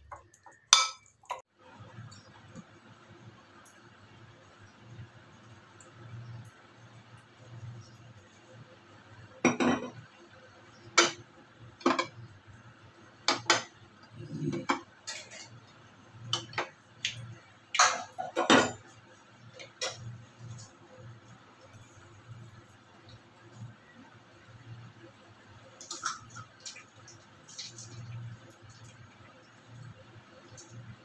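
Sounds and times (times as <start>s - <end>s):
kitchen utensils clattering: 14.4s - 15.6s, 17.8s - 18.9s.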